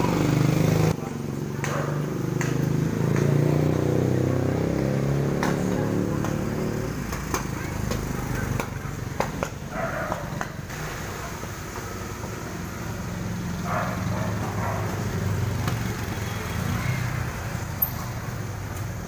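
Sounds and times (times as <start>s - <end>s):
low rumble of street traffic: 0.0s - 19.0s.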